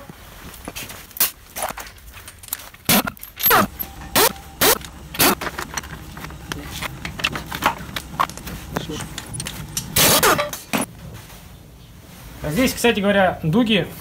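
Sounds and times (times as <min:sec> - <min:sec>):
metal parts clicking: 0:02.2 - 0:10.9
impact wrench whirring: 0:02.9 - 0:10.9.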